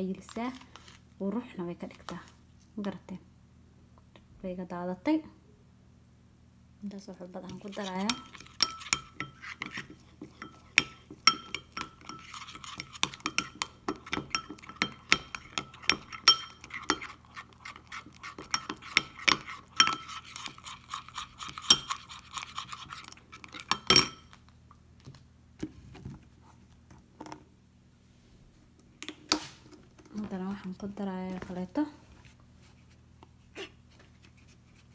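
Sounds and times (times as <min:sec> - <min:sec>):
spoon clinking against glass bowl: 0:07.5 - 0:22.8, 0:23.6 - 0:24.4.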